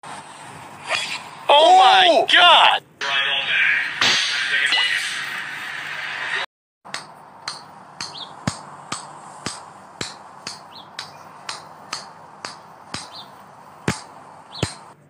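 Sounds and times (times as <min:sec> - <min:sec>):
golf ball tapping on club: 0:06.9 - 0:15.0
birds chirping: 0:07.0 - 0:15.0.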